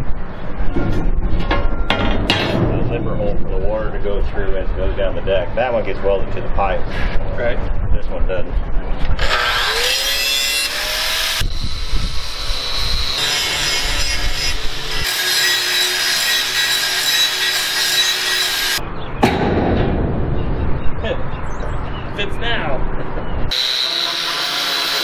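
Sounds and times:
angle grinder grinding steel: 0:09.2 - 0:18.8, 0:23.5 - 0:25.0.

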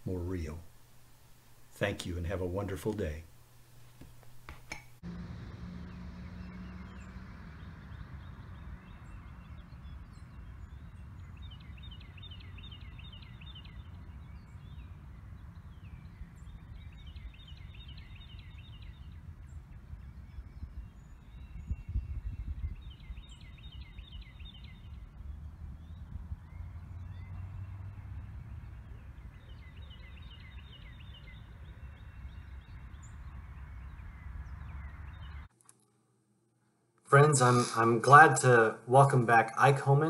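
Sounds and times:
wind rumble on microphone: 0:05.5 - 0:35.5.

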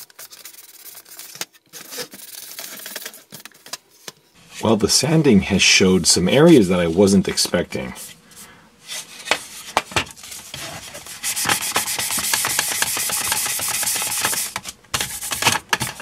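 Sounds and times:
sandpaper rubbing on plastic: 0:00.0 - 0:03.2, 0:08.8 - 0:16.0.

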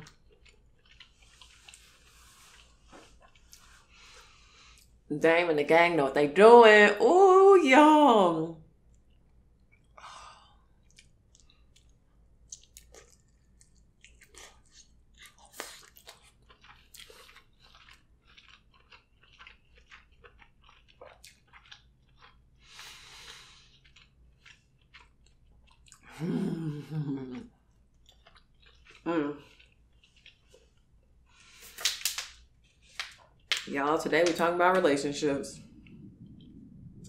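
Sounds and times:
person chewing wetly: 0:00.0 - 0:05.0, 0:10.6 - 0:33.6, 0:35.6 - 0:37.0
lip smacks: 0:10.9 - 0:18.0.

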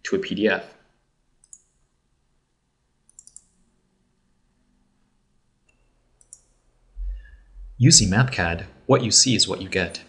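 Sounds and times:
computer mouse clicks: 0:01.4 - 0:01.9, 0:03.1 - 0:03.6, 0:05.6 - 0:06.6.

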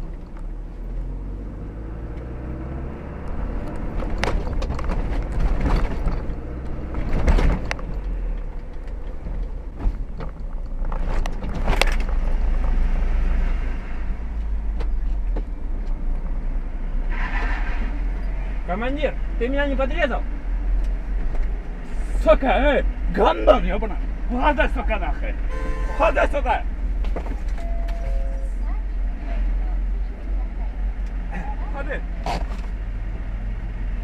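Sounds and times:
engine and road rumble: 0:00.0 - 0:34.0.

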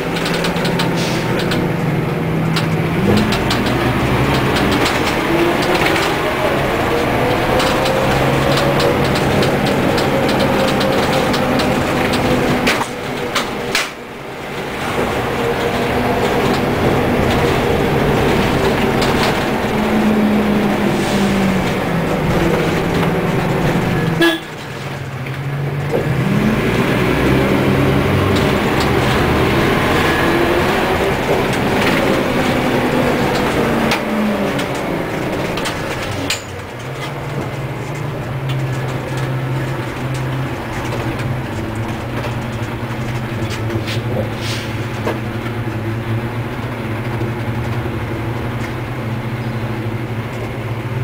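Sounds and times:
bus diesel engine running: 0:00.0 - 0:51.0.

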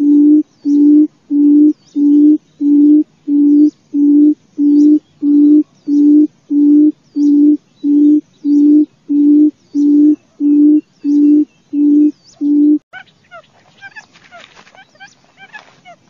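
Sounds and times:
bird booming call of low hoots: 0:00.0 - 0:12.1.

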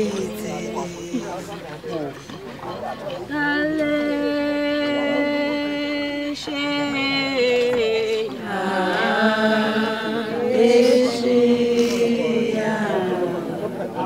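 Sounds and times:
voices chanting a hymn: 0:00.0 - 0:14.0.

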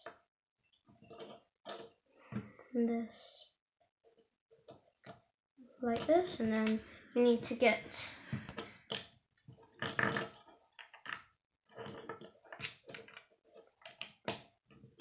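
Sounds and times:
plastic bricks clicking together: 0:09.8 - 0:13.2.

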